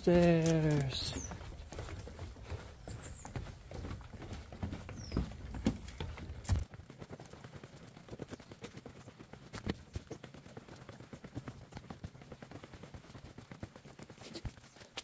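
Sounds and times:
footsteps on wooden stairs: 0.0s - 6.8s.

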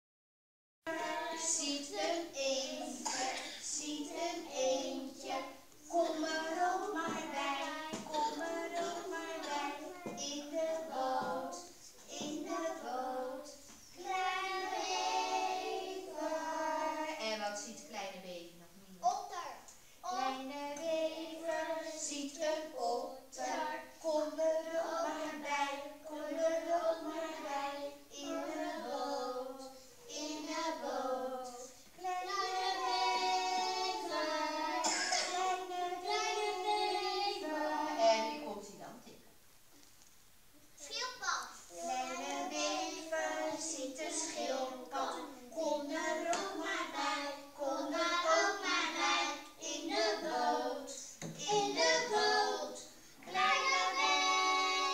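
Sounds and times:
children singing: 0.9s - 17.3s, 20.0s - 38.4s, 41.7s - 54.9s.

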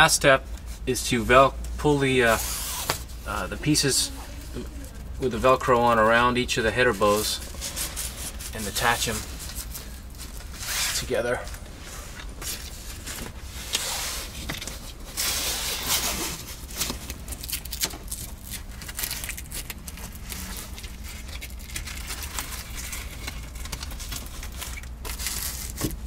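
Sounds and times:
velcro ripping: 2.3s - 3.1s, 15.2s - 25.9s.

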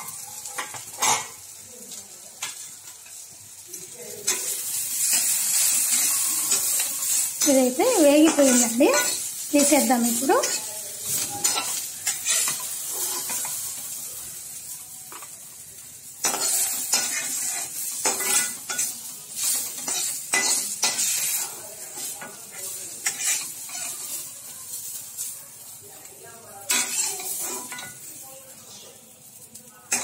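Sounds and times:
food sizzling in oil: 0.0s - 30.0s
metal spatula scraping wok: 4.0s - 15.4s, 16.1s - 25.4s, 26.6s - 28.8s.

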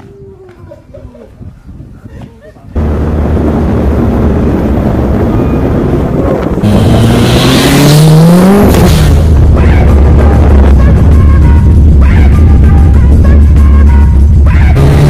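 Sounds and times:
car engine revving: 2.8s - 12.9s, 14.3s - 15.0s
car speeding by: 6.6s - 9.6s
electronic music with heavy bass: 6.6s - 15.0s.

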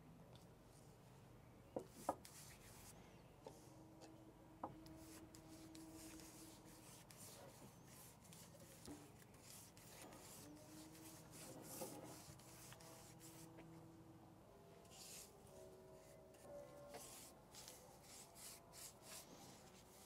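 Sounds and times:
faint scratchy rubbing: 5.0s - 13.7s.

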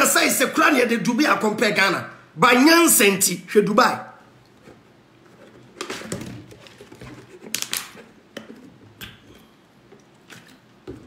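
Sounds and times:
handling rustles and light taps: 4.4s - 8.9s.

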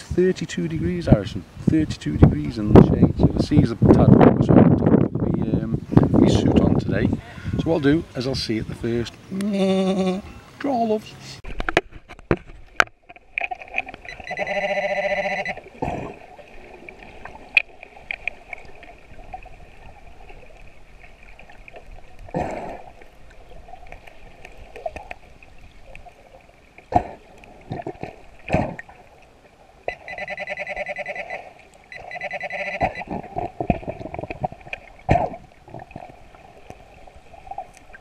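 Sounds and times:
metal detector buzzing tone: 14.0s - 15.6s, 29.9s - 33.2s
underwater water rushes: 15.2s - 38.0s.

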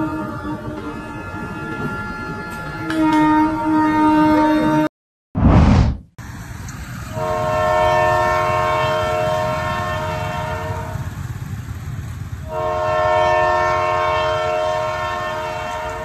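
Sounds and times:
train horn blasts: 0.0s - 4.9s, 7.1s - 11.2s, 12.4s - 16.0s
moving train rumble: 0.0s - 16.0s.

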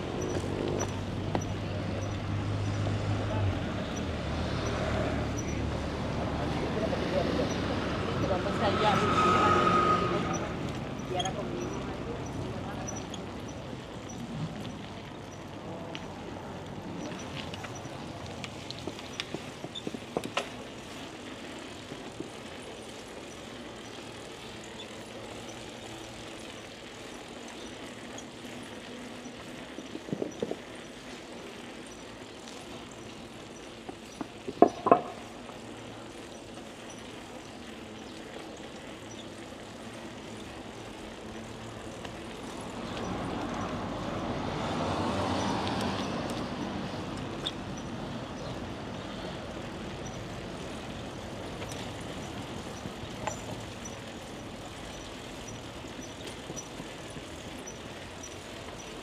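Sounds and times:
wind and tyre noise: 0.0s - 59.0s
light rattles and clicks: 45.4s - 59.0s.

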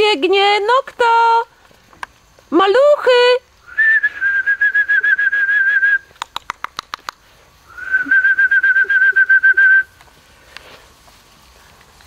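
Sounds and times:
trilling whistle: 3.6s - 6.1s, 7.7s - 10.0s
sharp clicks: 6.1s - 7.3s.

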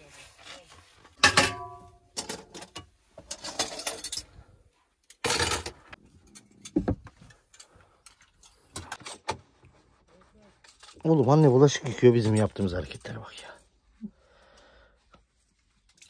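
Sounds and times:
cutlery and dishes clinking in sink: 1.2s - 4.3s, 5.1s - 9.5s, 10.8s - 13.6s.

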